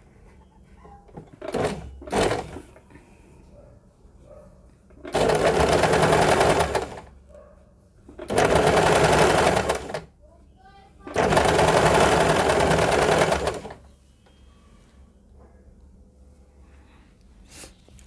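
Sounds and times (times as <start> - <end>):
sewing machine stitching: 1.1 - 2.7, 5.0 - 7.1, 8.1 - 10.1, 11.0 - 13.8.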